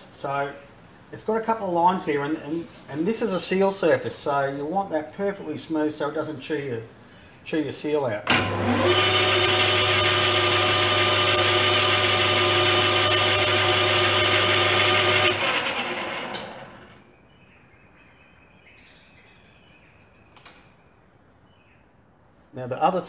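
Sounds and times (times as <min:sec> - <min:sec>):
lathe motor whining: 0:08.3 - 0:17.0
lathe winding down: 0:08.3 - 0:17.0.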